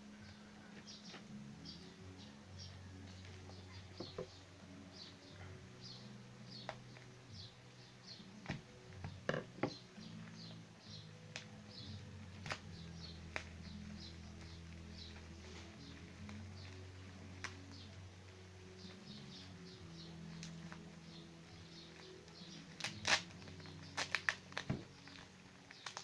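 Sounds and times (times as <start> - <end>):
plastic clicks and crinkles: 21.9 - 26.0.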